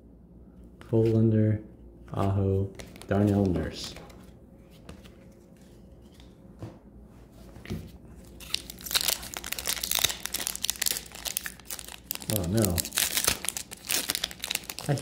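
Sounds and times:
foil wrapper crinkling and tearing: 0:08.2 - 0:15.0.

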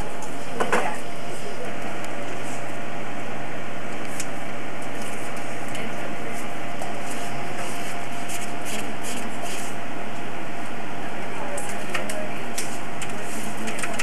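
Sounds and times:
paper tape rustling: 0:06.3 - 0:09.8.

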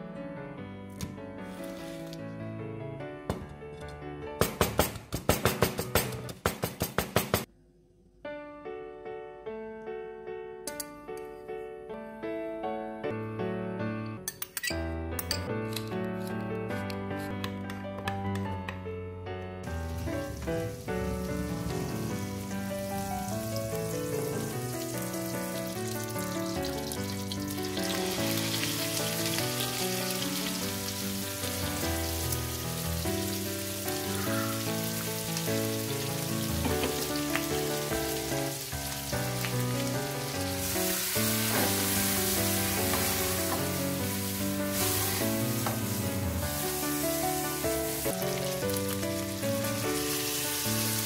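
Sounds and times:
background music: 0:08.2 - 0:51.0
meat sizzling in a frying pan: 0:19.8 - 0:51.0.

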